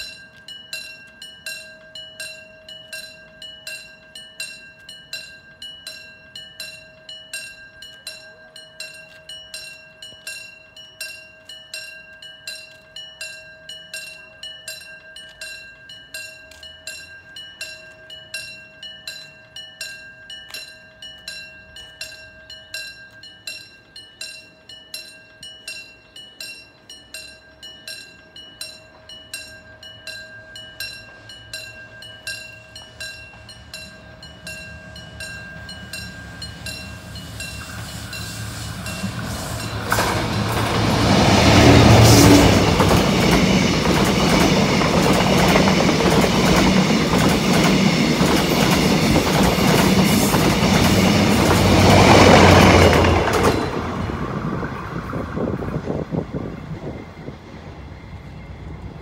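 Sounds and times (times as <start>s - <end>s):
level crossing warning bell: 0.0s - 56.4s
train wheels rumbling on rails: 27.0s - 59.0s.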